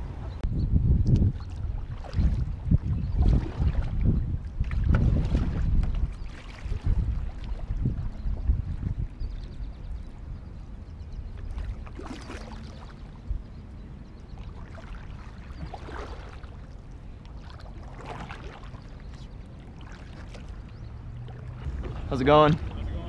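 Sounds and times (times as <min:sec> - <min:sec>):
paddle splashing in water: 0:01.2 - 0:08.1, 0:11.4 - 0:13.1, 0:14.4 - 0:23.0.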